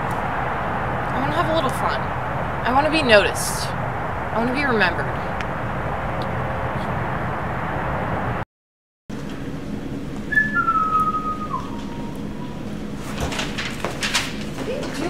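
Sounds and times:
outdoor background noise: 0.0s - 8.4s, 9.1s - 15.0s
person whistling a tune: 10.3s - 12.6s.

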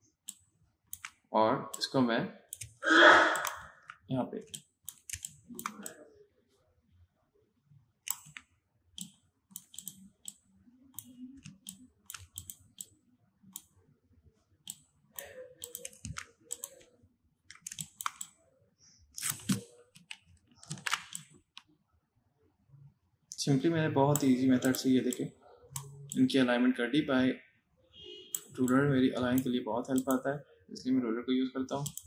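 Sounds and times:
mouse and keyboard clicking: 0.2s - 1.8s, 2.5s - 6.0s, 8.0s - 10.4s, 11.0s - 13.7s, 14.7s - 16.9s, 17.5s - 18.4s, 19.2s - 21.7s, 24.1s - 26.2s, 28.3s - 30.2s, 31.7s - 32.0s.

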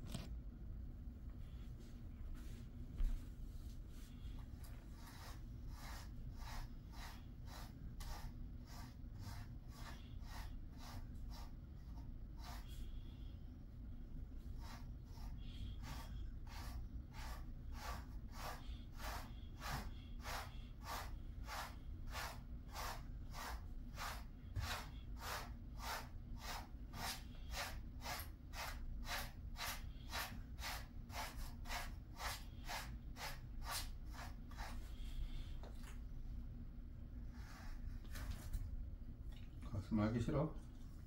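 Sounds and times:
brush raking through dog fur: 2.3s - 11.6s, 14.6s - 35.1s.

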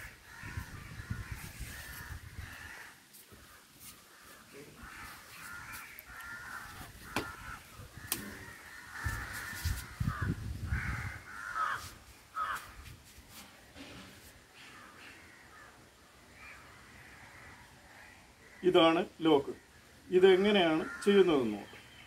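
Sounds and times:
crows cawing: 0.0s - 12.8s, 14.5s - 22.0s.

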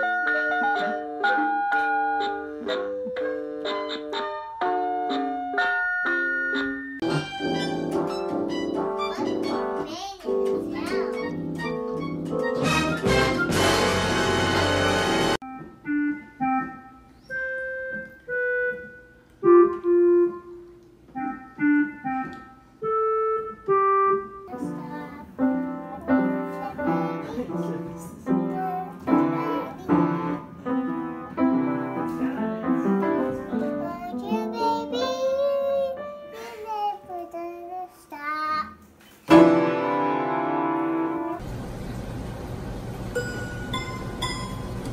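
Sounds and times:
upright piano notes: 0.0s - 37.8s, 39.3s - 41.5s
child singing or calling: 8.6s - 12.5s, 24.4s - 30.4s, 33.5s - 38.8s
loud burst of music: 12.6s - 15.4s.

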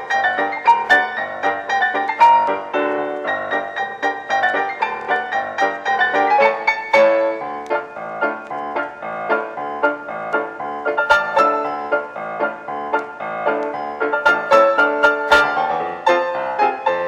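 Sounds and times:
quick piano music: 0.0s - 17.0s.

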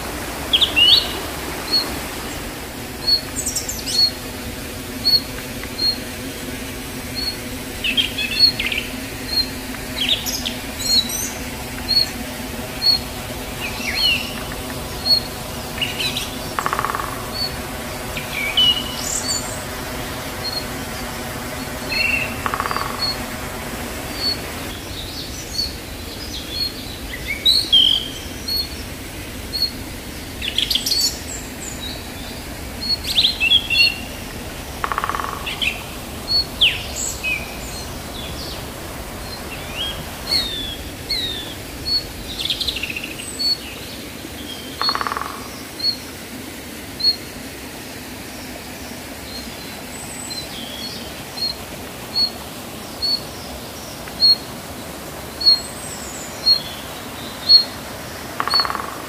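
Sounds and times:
lower bird call: 0.0s - 4.2s, 7.0s - 28.8s, 29.5s - 43.6s, 58.4s - 59.0s
small waterfall rushing: 0.0s - 59.0s
birds chirping and whistling: 0.5s - 2.0s, 3.0s - 4.2s, 5.0s - 6.1s, 7.1s - 23.4s, 24.0s - 28.8s, 29.5s - 34.2s, 34.8s - 43.8s, 54.2s - 54.4s, 55.4s - 57.8s, 58.4s - 58.8s
bird high chirp: 39.2s - 43.6s.

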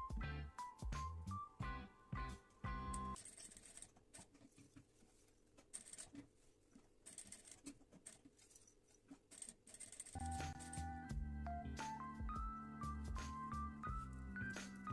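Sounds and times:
background music: 0.0s - 3.2s, 10.2s - 14.9s
faint clicks and rustles of hands: 3.2s - 10.9s.

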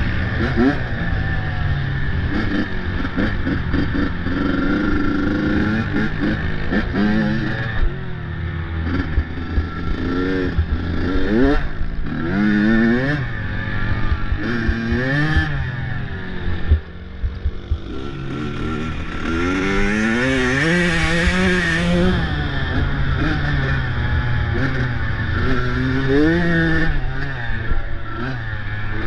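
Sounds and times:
vehicle engine revving: 0.0s - 29.0s
heavy low rumble: 13.8s - 20.0s.

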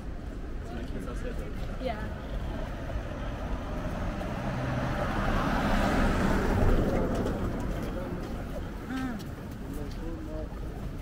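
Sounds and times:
van driving past: 2.0s - 9.0s.

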